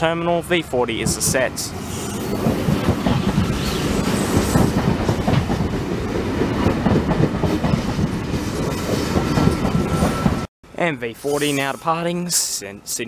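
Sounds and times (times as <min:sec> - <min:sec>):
electric train rolling past: 0:00.9 - 0:10.5.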